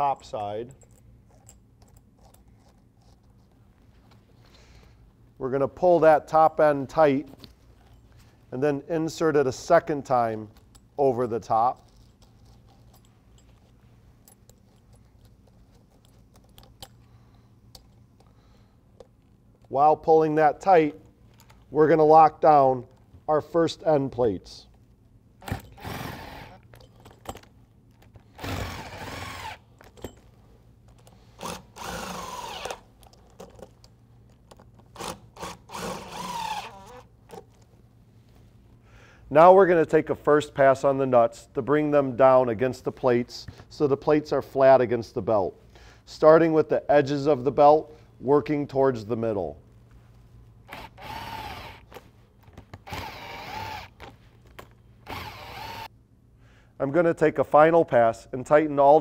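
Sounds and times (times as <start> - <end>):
cordless drill running nuts: 25.4 - 26.6, 28.3 - 29.7, 31.4 - 32.8, 35.0 - 37.1, 50.7 - 52.0, 52.8 - 54.1, 55.0 - 55.9.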